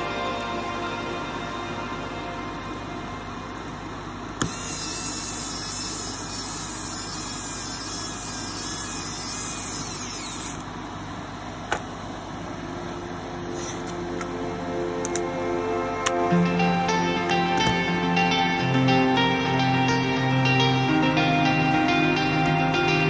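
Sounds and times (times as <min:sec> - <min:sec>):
aerosol can spraying: 0:04.4 - 0:10.5.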